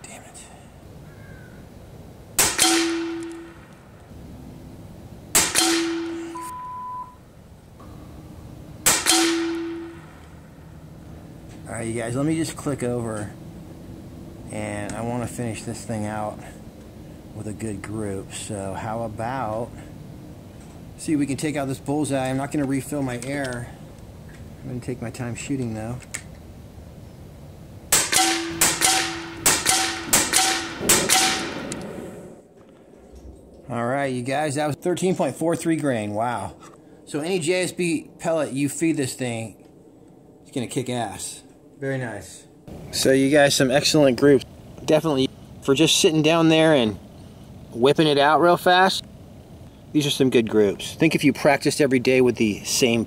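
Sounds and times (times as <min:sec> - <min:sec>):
air rifle shots: 0:02.4 - 0:03.9, 0:05.3 - 0:06.4, 0:08.8 - 0:10.5, 0:27.9 - 0:32.3
faint ringing: 0:05.8 - 0:13.3.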